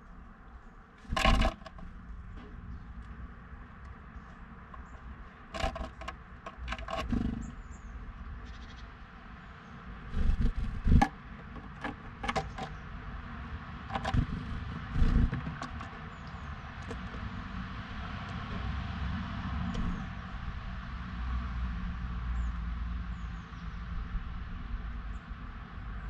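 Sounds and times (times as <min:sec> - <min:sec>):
bird pecking on wooden feeder: 0:01.0 - 0:02.1, 0:03.8 - 0:07.6, 0:10.1 - 0:12.8, 0:13.9 - 0:17.4.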